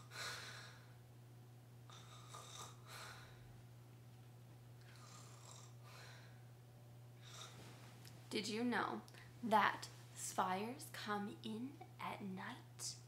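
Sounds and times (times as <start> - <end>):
faint low hum: 0.0 - 13.0
woman fake snoring: 1.9 - 2.9.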